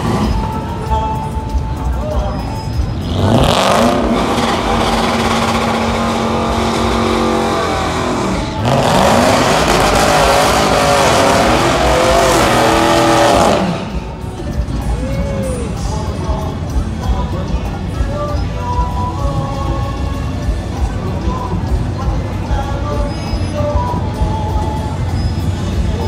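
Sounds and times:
truck engine revving high: 0.0 - 0.9, 2.4 - 14.8
tires spinning and squealing: 2.5 - 14.2.

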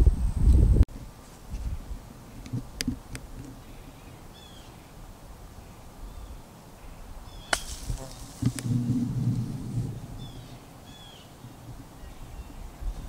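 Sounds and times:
bird chirping: 3.6 - 5.0, 5.6 - 13.0
golf club striking ball: 7.5 - 9.2.

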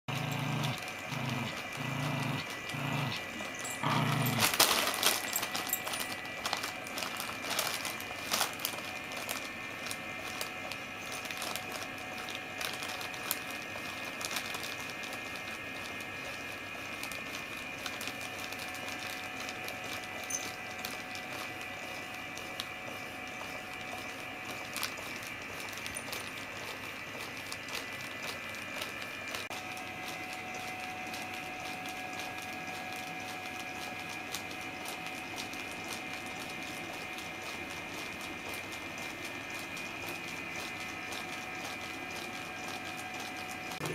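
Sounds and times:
high motor whine: 0.1 - 15.5
bag crinkling: 0.1 - 43.9.

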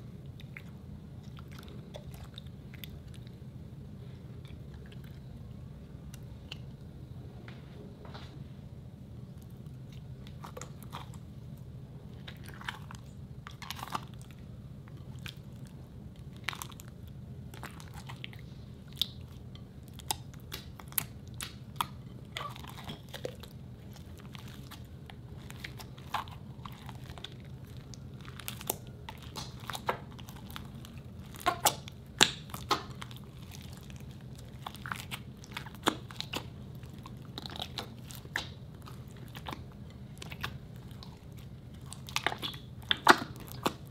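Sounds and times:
hands squishing slime: 9.4 - 43.9.

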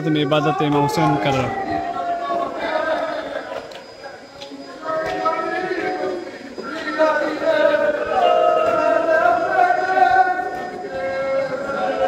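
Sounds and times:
man chanting melodically: 0.0 - 3.4.

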